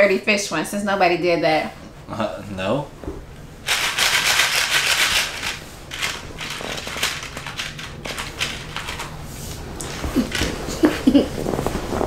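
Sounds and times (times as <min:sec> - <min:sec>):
crinkling handling noise: 0:03.7 - 0:12.0.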